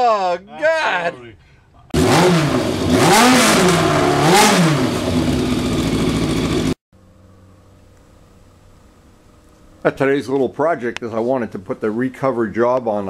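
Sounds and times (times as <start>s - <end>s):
motorcycle engine revving: 1.9s - 7.6s.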